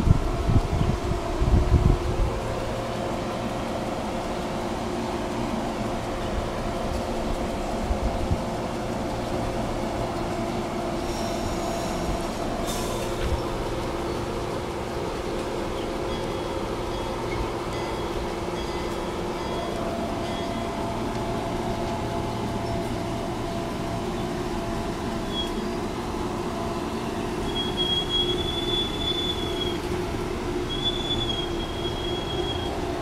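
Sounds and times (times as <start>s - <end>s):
train wheels rumbling on rail: 0.0s - 33.0s
high wheel squeals: 15.8s - 20.8s, 25.2s - 25.9s, 27.4s - 30.0s, 30.6s - 33.0s.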